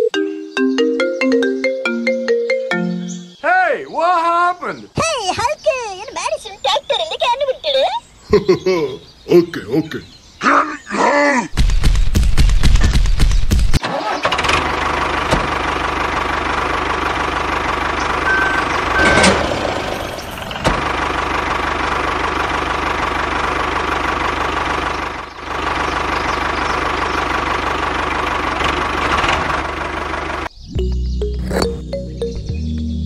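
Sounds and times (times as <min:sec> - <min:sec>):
engine running: 0:13.8 - 0:32.5.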